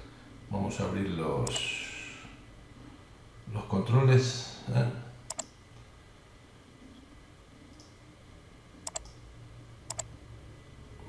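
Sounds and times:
faint low hum: 0.0 - 11.0
computer mouse clicking: 1.4 - 1.6, 5.3 - 5.5, 8.8 - 9.2, 9.9 - 10.1.

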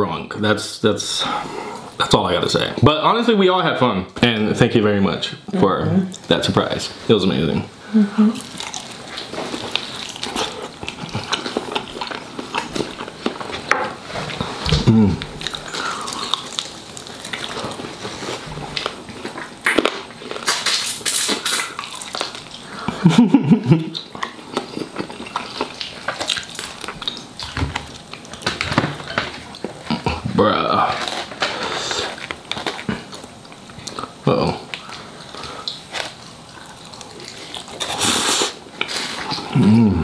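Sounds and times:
low hum from eater: 0.0 - 40.0
wet chewing and lip-smacking: 8.4 - 13.7, 14.6 - 23.0, 23.8 - 30.2.

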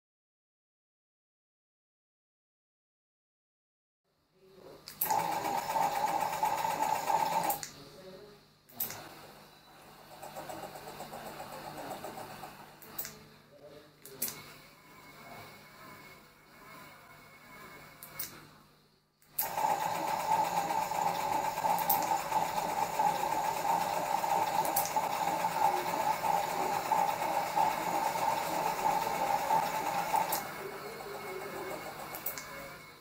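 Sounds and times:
wooden mechanism whirring: 5.0 - 7.6, 19.4 - 32.7.

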